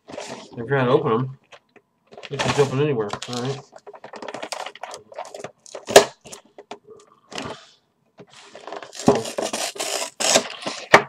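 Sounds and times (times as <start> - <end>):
cardboard tearing and rustling: 8.4 - 11.0.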